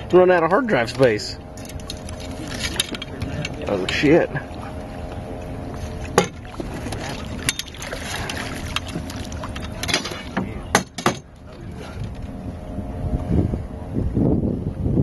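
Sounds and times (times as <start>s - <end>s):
steady motor hum: 0.0s - 15.0s
water splashing: 1.4s - 12.1s
knocks on aluminum boat: 6.2s - 6.7s, 9.8s - 11.3s.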